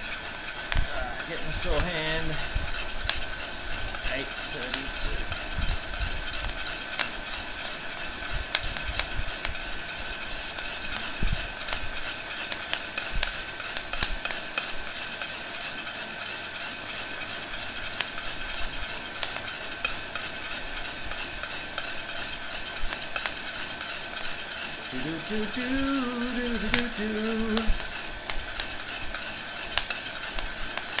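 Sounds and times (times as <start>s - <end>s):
spoon scraping beans in pot: 0.0s - 8.2s
heat gun blowing with whine: 0.0s - 15.6s, 16.8s - 31.0s
coffee beans cracking: 0.0s - 31.0s.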